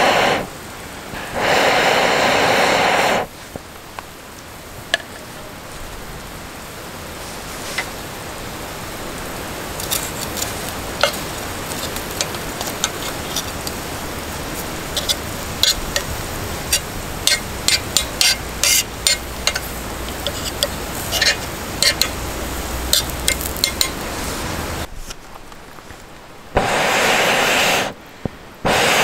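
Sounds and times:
garlic sizzling in oil: 8.8s - 24.9s
knife scraping metal griddle: 9.8s - 13.8s, 14.6s - 22.2s, 22.9s - 24.0s.

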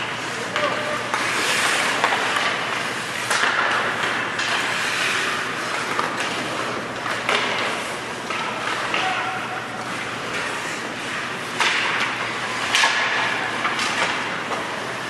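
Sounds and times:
hockey sticks and puck knocks: 0.0s - 15.0s
skates hissing on ice: 0.2s - 5.9s.

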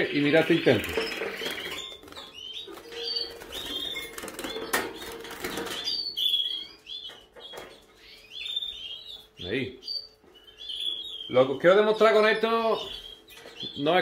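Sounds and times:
wings flapping: 0.7s - 5.8s.

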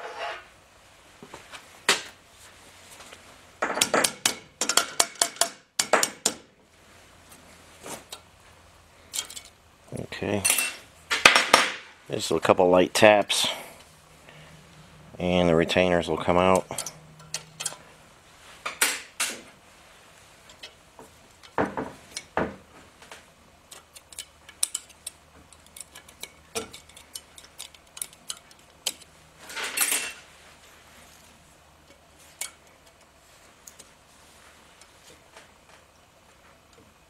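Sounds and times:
metal clicks and scrapes: 16.4s - 17.9s, 23.7s - 30.2s.

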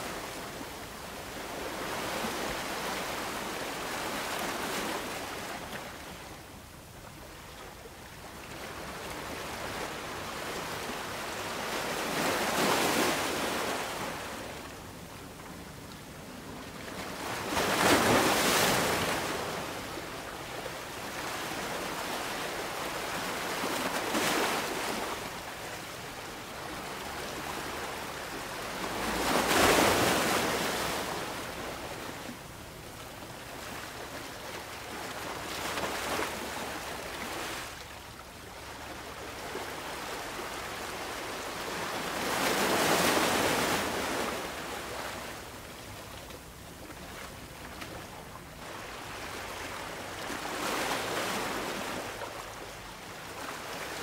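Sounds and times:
ocean waves breaking: 17.0s - 20.0s, 26.7s - 32.4s.

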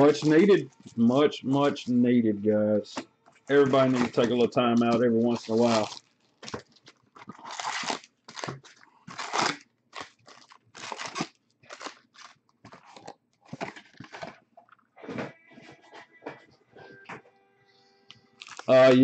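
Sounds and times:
card packs crinkling and rustling: 0.0s - 2.0s, 2.9s - 15.3s, 18.4s - 19.0s.

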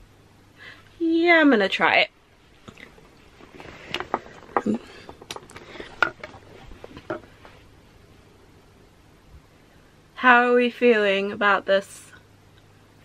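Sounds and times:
clothes rustling: 2.6s - 7.7s.

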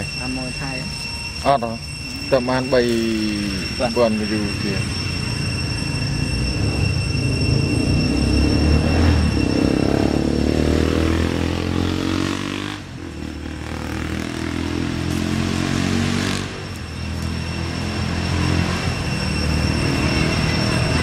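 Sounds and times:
engine running: 2.2s - 21.0s.

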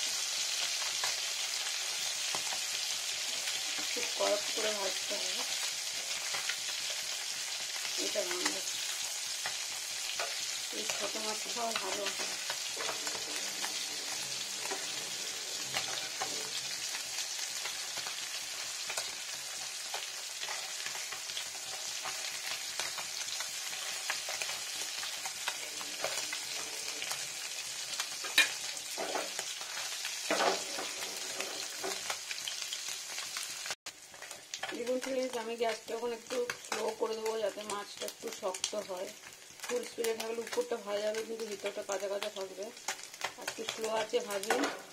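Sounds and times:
fish sizzling in a pan: 0.0s - 44.9s
metal spatula scraping: 9.4s - 18.2s, 28.2s - 32.1s.

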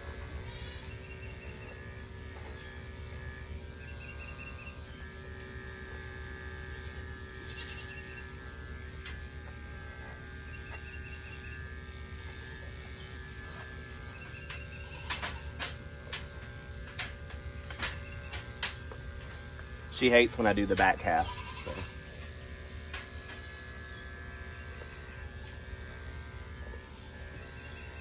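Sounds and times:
electric clippers humming: 0.0s - 28.0s.

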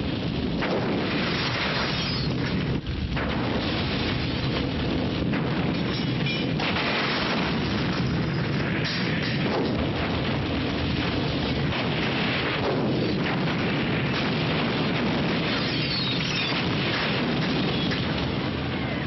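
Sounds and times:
explosions: 0.0s - 19.0s
gunfire: 0.6s - 4.6s, 5.2s - 18.6s.

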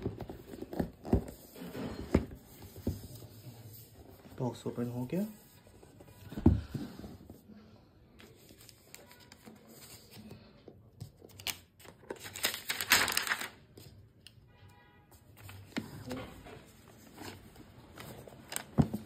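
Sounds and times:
protective wrap crinkling: 11.4s - 13.6s.

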